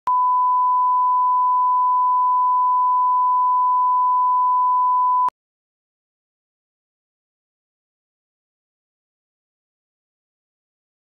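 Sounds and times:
steady pure beep tone: 0.1 - 5.3.

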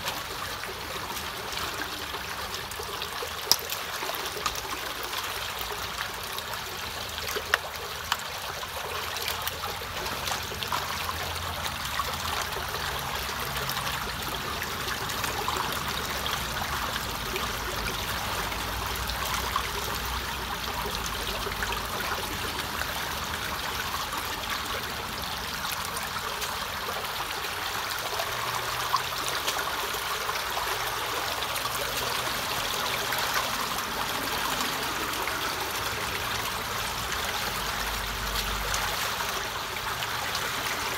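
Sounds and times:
muddy water flowing into culvert: 0.0 - 40.9.

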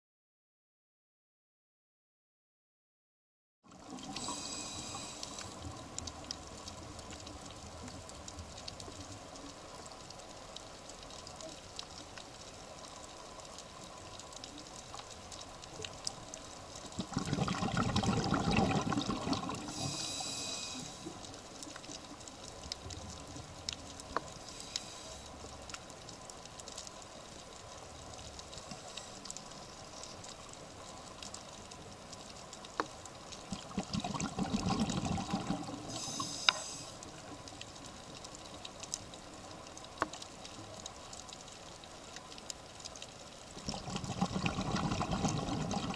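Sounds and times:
faint clicks: 3.8 - 17.7, 18.6 - 45.9
regulator breath hiss: 4.2 - 5.6, 19.7 - 21.3, 24.4 - 25.4, 35.9 - 37.1
bubbles gushing underwater: 17.0 - 20.0, 33.5 - 36.2, 43.6 - 45.9.

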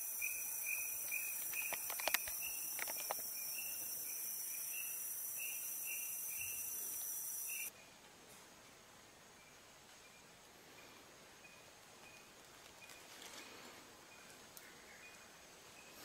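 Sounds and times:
high-pitched insect drone: 0.0 - 7.7
regular insect chirp: 0.0 - 7.9, 9.3 - 16.0
sharp clicks: 1.4 - 3.3.

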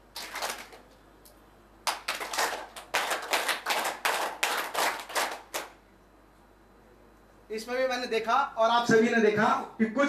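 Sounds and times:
audience clapping: 0.0 - 0.8, 1.8 - 5.8.

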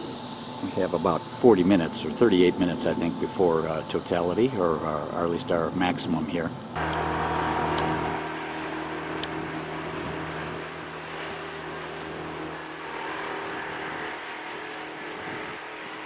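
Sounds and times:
motor humming: 6.8 - 16.0.

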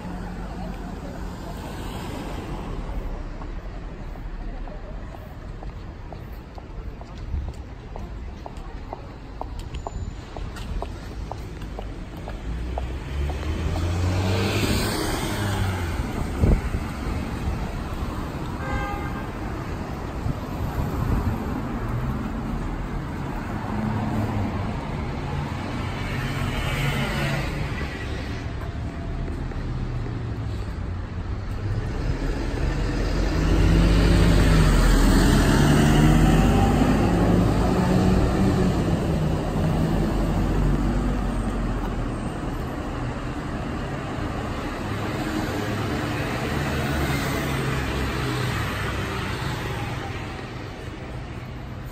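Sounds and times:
cars passing: 0.0 - 51.9
heavy vehicle engine passing: 31.6 - 42.6.

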